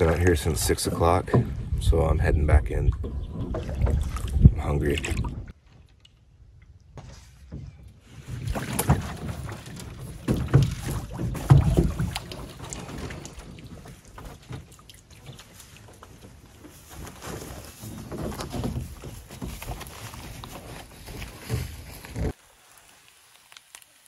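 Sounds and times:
wind rumbling on microphone: 0.0s - 5.6s
water dripping and splashing: 3.4s - 7.0s, 8.2s - 17.8s, 22.3s - 24.0s
paddle swishing water: 7.0s - 23.3s.

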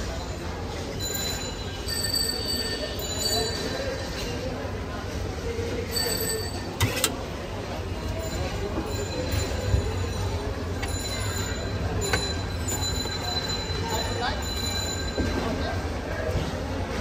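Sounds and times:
street background rumble: 0.0s - 17.0s.

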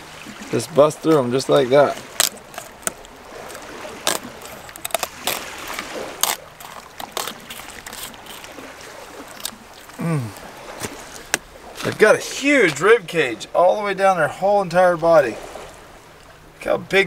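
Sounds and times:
knife cutting fish bones: 1.9s - 9.6s.

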